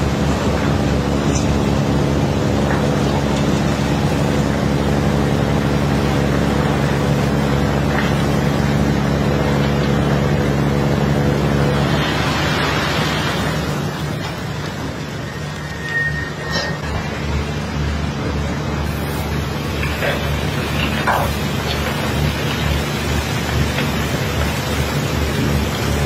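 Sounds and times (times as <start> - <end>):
engine droning: 0.0 - 26.0
iron ore sliding down pile: 11.6 - 17.4.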